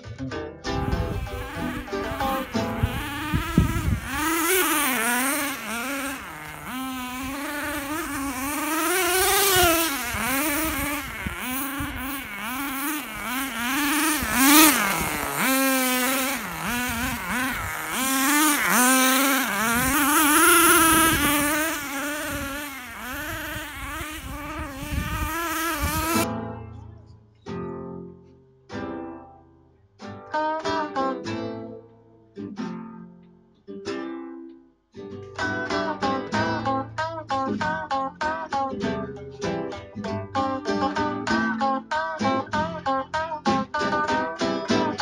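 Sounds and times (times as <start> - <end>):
small engine revving: 0.7 - 26.3.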